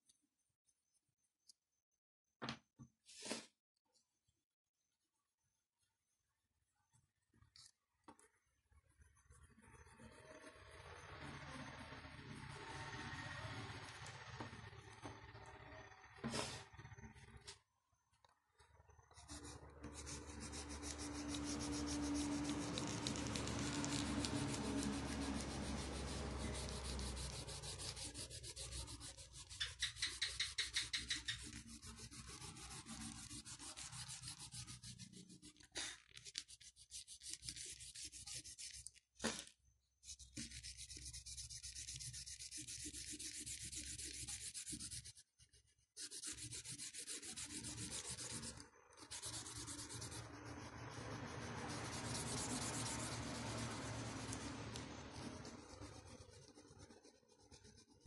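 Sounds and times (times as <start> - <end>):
oil pastel rubbing on paper: 19.3 - 38.9, 40.0 - 58.0.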